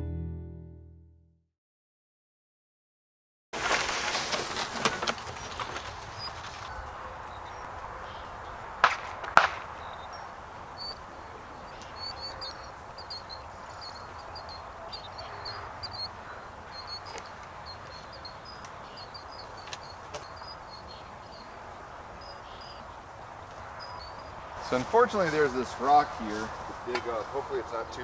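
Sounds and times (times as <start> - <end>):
steady outdoor background: 3.6 - 28.0
faint bird chirping: 5.4 - 8.7, 9.8 - 24.8.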